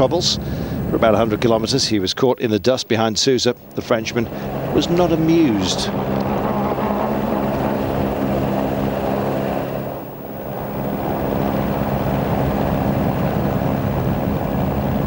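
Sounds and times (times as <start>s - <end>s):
road and gravel noise: 3.2s - 15.0s
car engine running: 3.5s - 15.0s.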